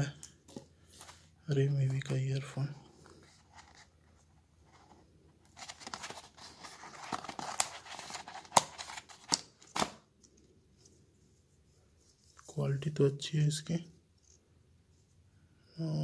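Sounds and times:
rustling and scraping: 0.4 - 2.2, 2.9 - 9.3.

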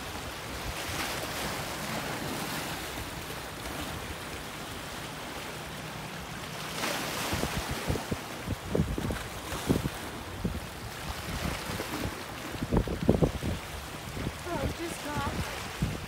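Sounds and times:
sea water lapping at shore: 0.0 - 16.0
wind rumbling on microphone: 6.9 - 16.0.

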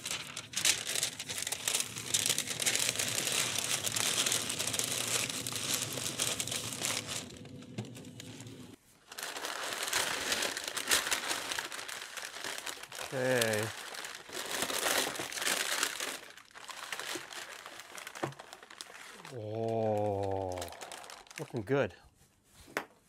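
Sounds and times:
paper crinkling and rustling: 0.0 - 21.8.

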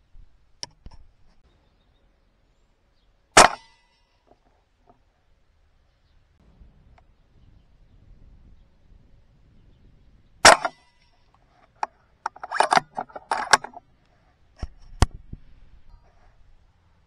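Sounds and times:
air rifle shot: 3.4 - 3.8, 10.4 - 10.8.

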